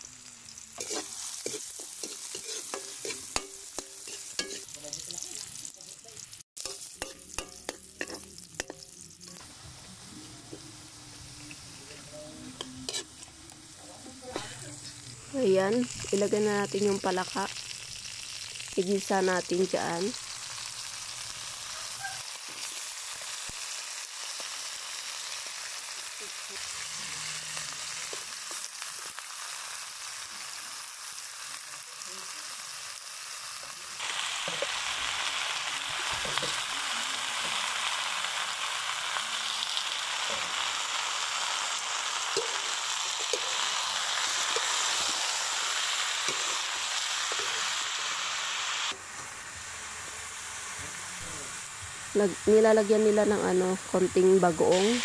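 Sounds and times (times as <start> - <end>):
meat sizzling in hot oil: 0.0 - 55.0
metal spatula scraping wok: 0.8 - 5.7, 6.6 - 15.2, 34.1 - 36.7, 42.3 - 47.7.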